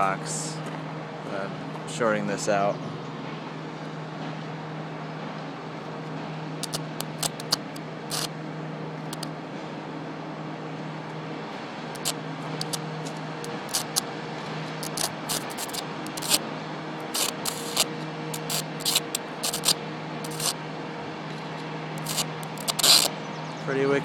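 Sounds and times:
electric arc buzzing and crackling: 6.6s - 8.4s, 9.0s - 9.4s, 11.9s - 20.6s, 21.3s - 23.2s.

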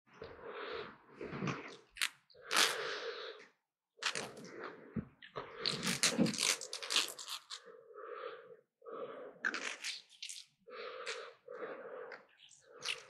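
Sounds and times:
wet slurps and chews: 9.4s - 11.4s, 12.2s - 13.0s.

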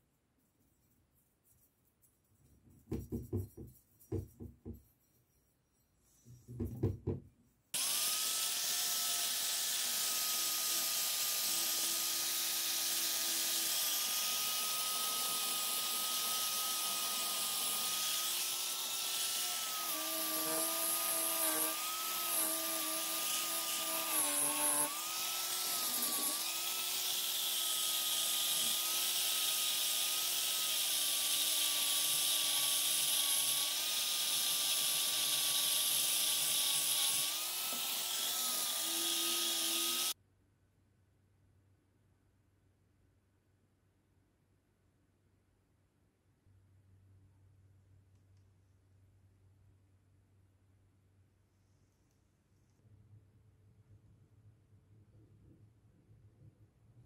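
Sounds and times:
rubbing and handling sounds: 0.0s - 7.8s
angle grinder whining: 7.8s - 40.2s.

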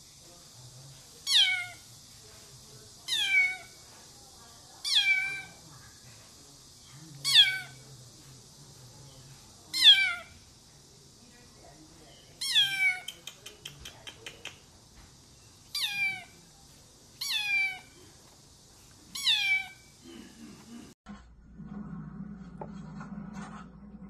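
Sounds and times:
kitten meowing: 1.3s - 1.8s, 4.9s - 5.5s, 7.3s - 7.7s, 9.8s - 10.3s, 12.4s - 13.1s, 15.8s - 16.3s, 17.2s - 17.9s, 19.2s - 19.8s.

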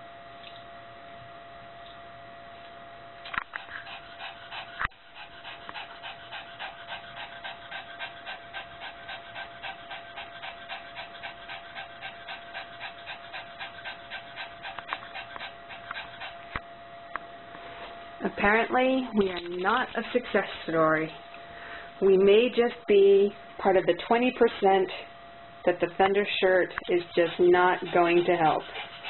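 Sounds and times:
small dog panting: 3.3s - 16.6s, 18.3s - 21.3s, 25.8s - 29.0s.

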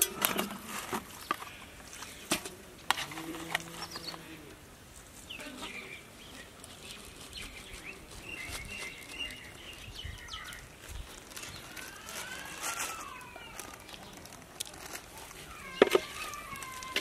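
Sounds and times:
birds chirping: 3.1s - 4.6s, 5.2s - 17.0s.

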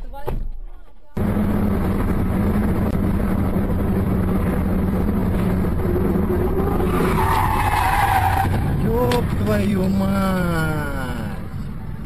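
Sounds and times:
car engine and road noise: 0.0s - 12.0s
tyres squealing: 6.7s - 9.3s.

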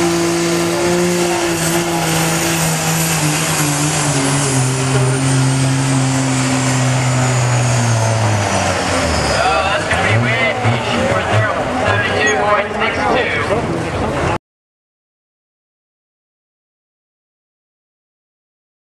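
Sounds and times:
diesel engine at full throttle: 0.0s - 14.4s.

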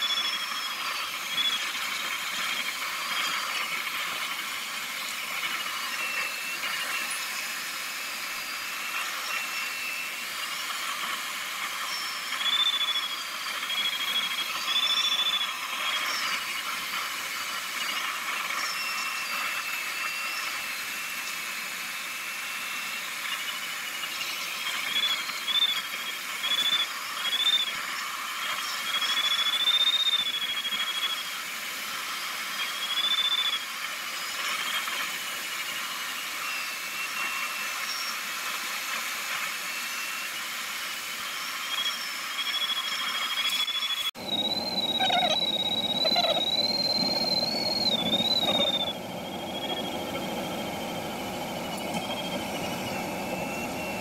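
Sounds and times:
variometer whistle: 0.0s - 3.7s, 4.9s - 27.9s, 28.6s - 31.4s, 32.6s - 33.7s, 41.2s - 54.0s
cockpit airflow noise: 44.1s - 54.0s.

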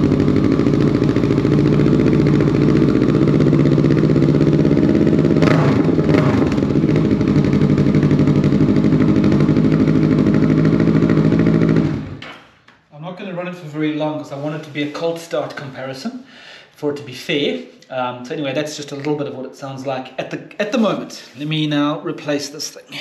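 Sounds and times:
motorcycle engine idling: 0.0s - 12.2s.

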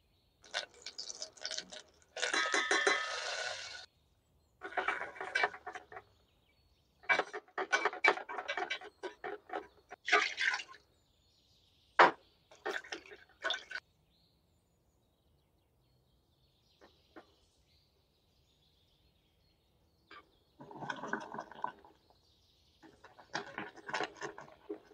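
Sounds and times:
sauce sloshing and scraping: 22.8s - 24.9s.

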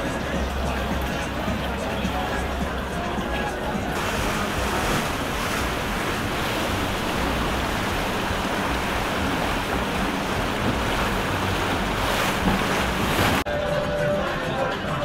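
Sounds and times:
choppy water splashing: 0.0s - 13.5s
faint outboard motor hum: 0.0s - 13.5s
wind buffeting microphone: 3.8s - 13.4s.

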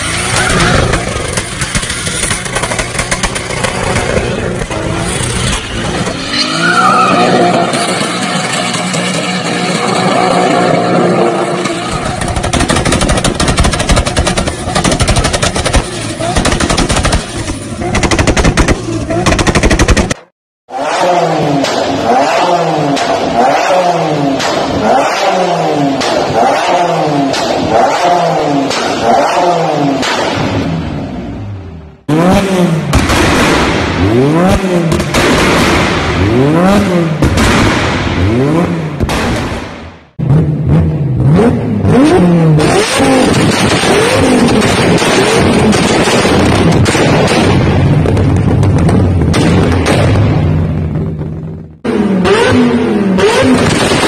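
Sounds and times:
rapid exhaust backfires: 0.0s - 6.2s, 7.3s - 20.3s, 20.9s - 54.0s
car engine revving: 0.0s - 20.1s, 20.7s - 54.0s
backfire bangs and pops: 12.2s - 20.3s, 32.9s - 40.0s, 42.6s - 51.3s, 53.3s - 54.0s.

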